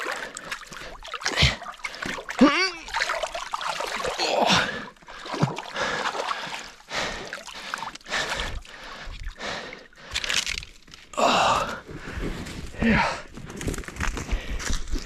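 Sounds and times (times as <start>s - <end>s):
water splashing: 0.0s - 10.6s
person scrambling: 2.4s - 3.0s.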